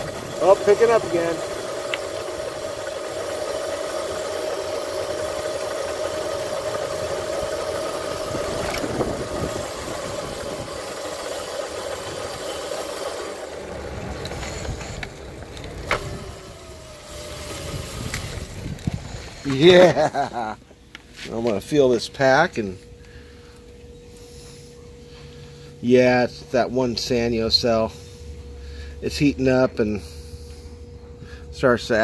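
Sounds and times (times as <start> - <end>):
electric bike motor whining: 0.0 - 21.1
road and wind noise: 8.3 - 10.8, 13.7 - 19.6.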